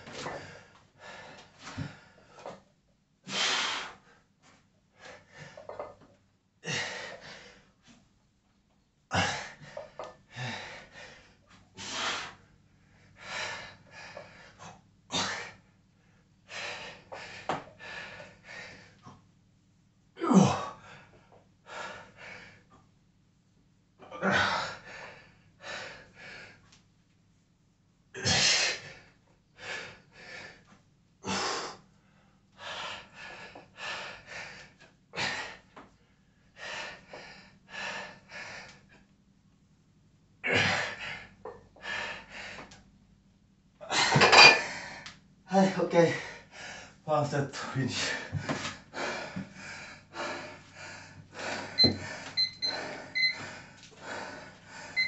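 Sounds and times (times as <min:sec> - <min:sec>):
man breathing hard: 0:00.1 - 0:02.6, 0:03.3 - 0:04.3, 0:06.6 - 0:07.8, 0:09.1 - 0:19.1, 0:20.5 - 0:22.7, 0:24.2 - 0:26.6, 0:28.3 - 0:30.7, 0:31.3 - 0:39.0, 0:40.5 - 0:42.8, 0:46.0 - 0:55.0
man grunting: 0:20.2 - 0:20.8.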